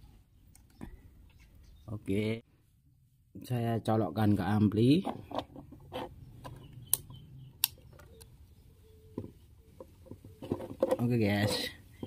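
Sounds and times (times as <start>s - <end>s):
plastic case handling: 9.2s - 12.0s.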